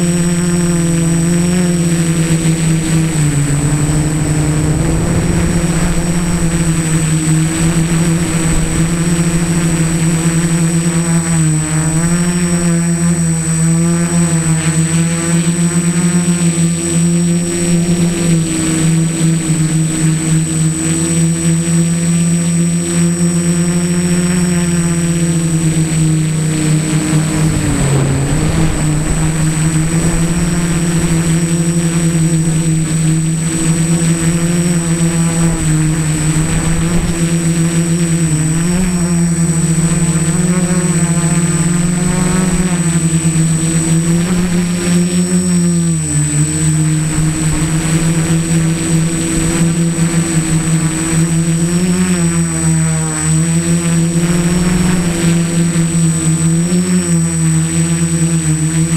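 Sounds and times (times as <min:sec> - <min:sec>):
thin high whine: 0:00.0 - 0:13.6, 0:14.3 - 0:58.9
drone propellers buzzing: 0:00.0 - 0:58.9.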